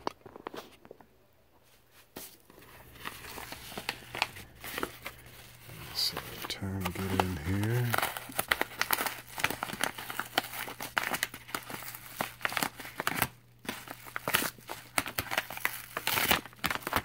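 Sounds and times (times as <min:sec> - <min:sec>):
paper envelope crinkling: 0:02.2 - 0:17.0.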